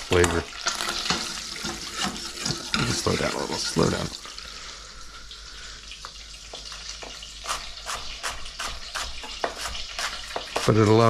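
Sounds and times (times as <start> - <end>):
butter sizzling in a pan: 0.0 - 11.0
knife chopping on wooden board: 7.5 - 10.7.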